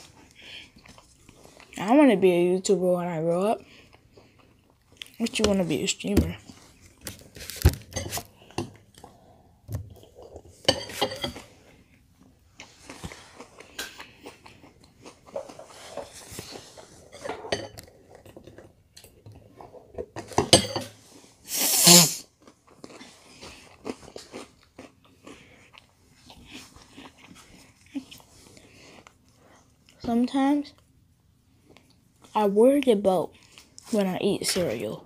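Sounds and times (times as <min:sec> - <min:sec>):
cereal being chewed: 0:11.4 - 0:17.1, 0:22.2 - 0:30.0.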